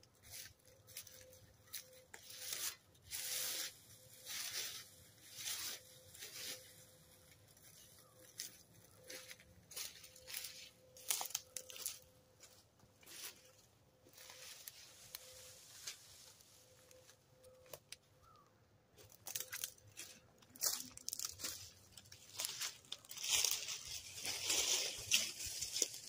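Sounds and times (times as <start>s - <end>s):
dry leaves and twigs crunching: 0.0s - 26.0s.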